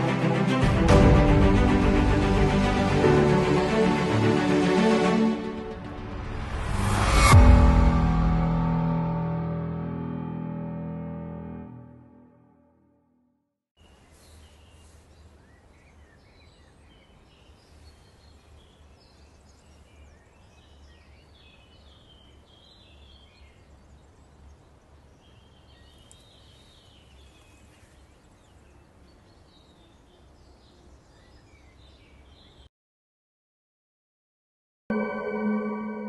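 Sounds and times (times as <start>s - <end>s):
birds chirping: 13.8s - 32.7s.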